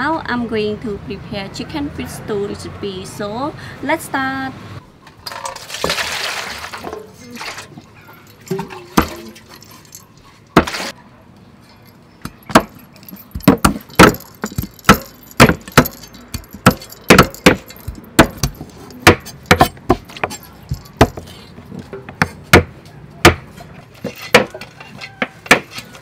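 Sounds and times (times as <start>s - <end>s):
cleaver chopping on wooden block: 12.5s - 21.3s, 22.0s - 23.5s, 24.2s - 24.6s, 25.4s - 25.8s.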